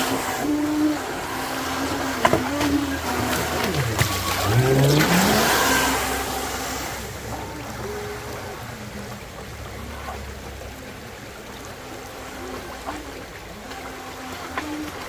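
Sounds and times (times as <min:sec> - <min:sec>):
electric motor whining: 0:00.0 - 0:08.7
water rushing from a jet: 0:00.0 - 0:15.0.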